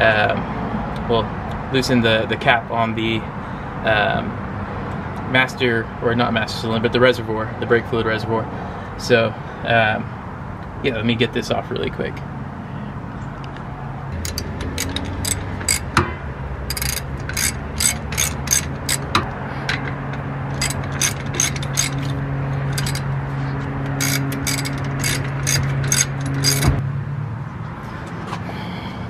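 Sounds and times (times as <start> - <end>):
socket ratchet clicking: 14.2 - 23.1, 23.8 - 26.8.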